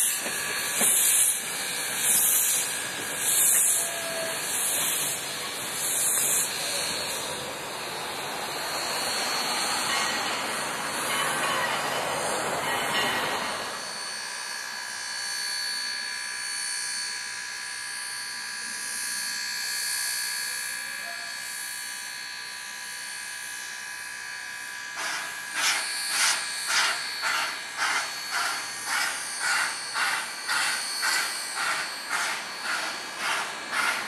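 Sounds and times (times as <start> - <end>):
rhythmic steam puffs: 0.0 - 14.2, 24.9 - 34.0
steam locomotive hissing: 0.0 - 14.2, 24.8 - 34.0.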